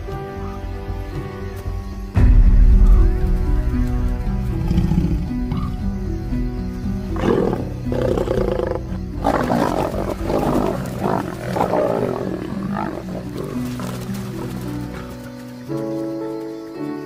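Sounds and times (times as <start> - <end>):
background music: 0.0 - 17.0
lioness snarling and roaring: 4.6 - 5.8, 7.1 - 15.1.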